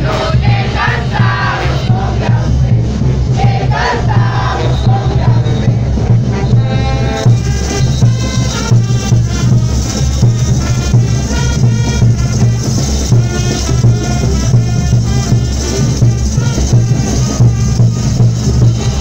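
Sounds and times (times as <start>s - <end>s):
sousaphone bass: 0.0s - 8.6s
brass band playing dance music: 0.0s - 19.0s
shaken percussion: 0.0s - 19.0s.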